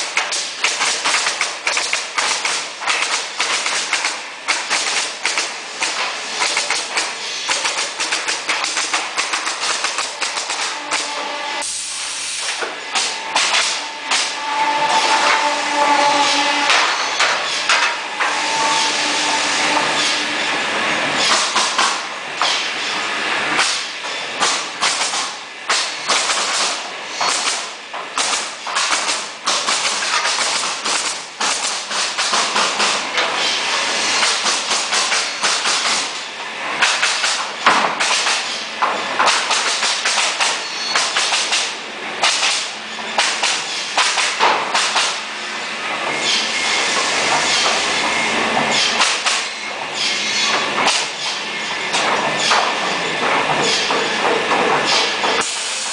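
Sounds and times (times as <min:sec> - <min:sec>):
pneumatic nailers firing: 0:00.0 - 0:15.5, 0:16.6 - 0:20.2, 0:21.2 - 0:45.3, 0:46.0 - 0:55.9
compressed air hissing: 0:09.7 - 0:22.9, 0:55.4 - 0:55.9.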